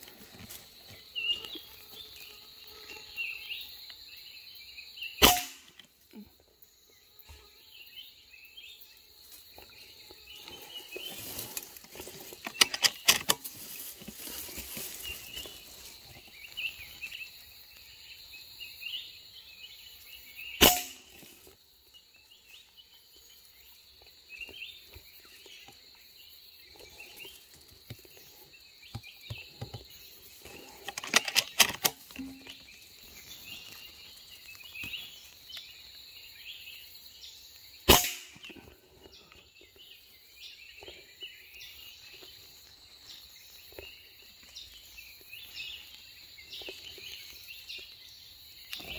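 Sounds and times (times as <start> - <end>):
insects droning: 0.0 - 48.9
rifle shot: 5.2 - 5.7, 20.6 - 21.1, 37.9 - 38.4.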